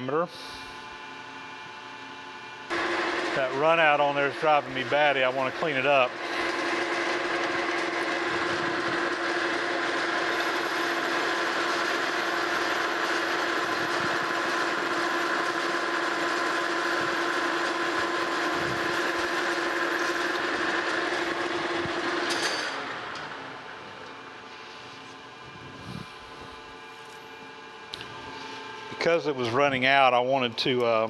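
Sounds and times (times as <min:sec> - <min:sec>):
lathe spinning: 0:01.1 - 0:30.6
metal lathe cutting steel: 0:02.7 - 0:23.8.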